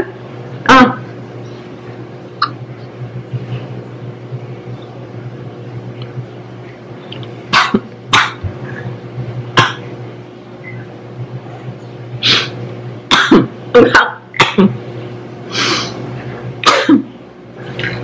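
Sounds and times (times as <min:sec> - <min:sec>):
woman clearing her throat: 0:07.5 - 0:08.4, 0:09.6 - 0:09.9, 0:13.1 - 0:14.8, 0:16.6 - 0:17.1
woman coughing: 0:07.5 - 0:08.4, 0:09.6 - 0:09.8, 0:13.1 - 0:14.8, 0:16.6 - 0:17.1.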